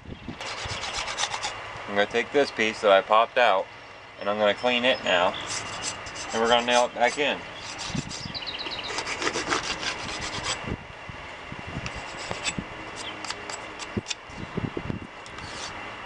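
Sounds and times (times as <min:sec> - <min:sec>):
metal tool scraping wood: 0:00.4 - 0:01.6, 0:05.4 - 0:10.6, 0:11.9 - 0:14.2, 0:15.4 - 0:15.8.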